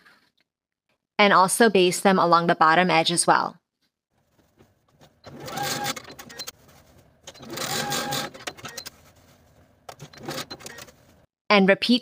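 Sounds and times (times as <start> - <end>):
sewing machine motor whine: 5.3 - 6.2, 7.4 - 8.5.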